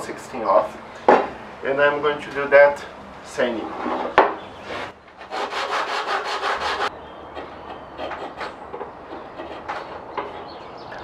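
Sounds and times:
chisel scraping wood: 3.7 - 10.6.

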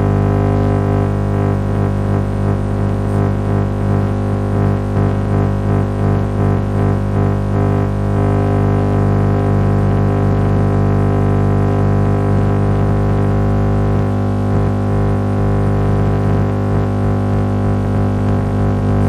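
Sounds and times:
loud multi-tone buzz: 0.0 - 19.0
radio broadcast: 18.7 - 19.0.

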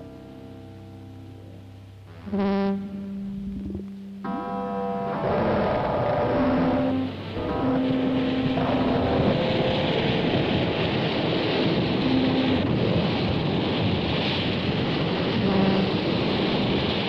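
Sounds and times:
held electronic notes: 0.0 - 13.3
dense rushing electronic noise: 0.0 - 17.0.

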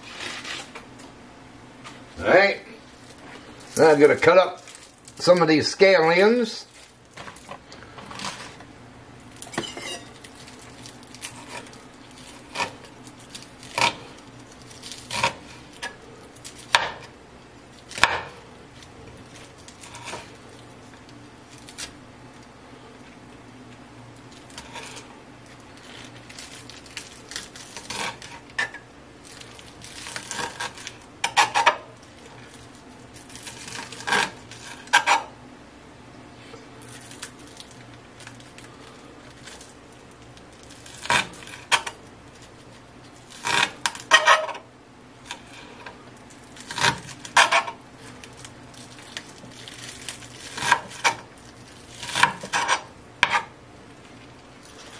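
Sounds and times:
knife chopping on cutting board: 18.0 - 18.4.

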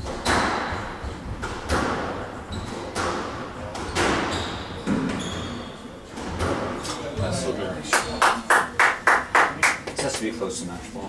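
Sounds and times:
squash ball hitting rackets and walls: 0.0 - 7.1
shoes squeaking on hardwood floor: 0.0 - 8.5.

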